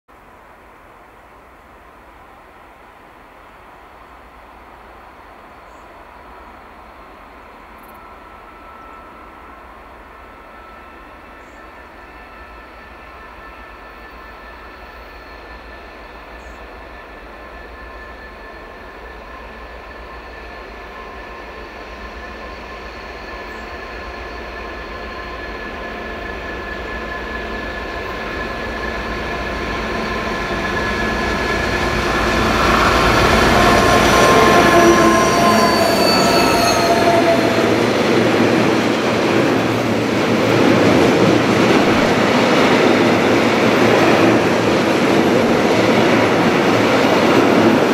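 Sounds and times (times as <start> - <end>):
diesel locomotive engines: 0.2 - 47.9
train wagons rumbling and clattering: 25.4 - 47.9.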